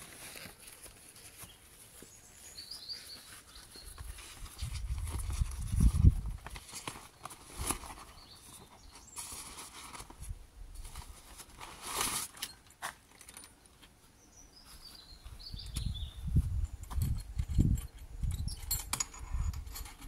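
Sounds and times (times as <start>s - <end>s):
nylon bag rustling: 0.0s - 13.4s
bird chirps: 1.4s - 4.3s, 8.0s - 9.4s, 14.2s - 16.4s
metal frame clinking: 16.5s - 20.0s.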